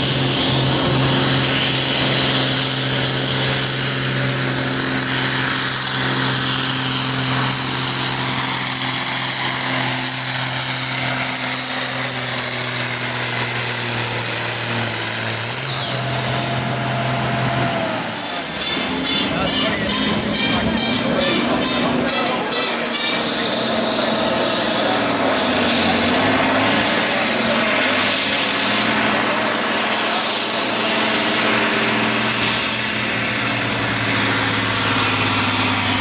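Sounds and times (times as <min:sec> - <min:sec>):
diesel engine running under load: 0:00.0 - 0:36.0
high turbo whistle: 0:15.0 - 0:36.0.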